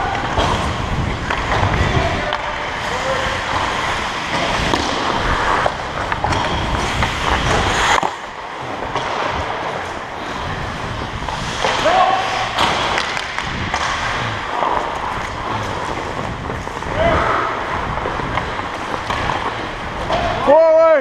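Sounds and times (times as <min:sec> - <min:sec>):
hockey stick clacks: 0:00.1 - 0:10.4, 0:11.2 - 0:20.4
skate blades scraping on ice: 0:00.2 - 0:20.4
wind rumble on microphone: 0:15.1 - 0:18.6.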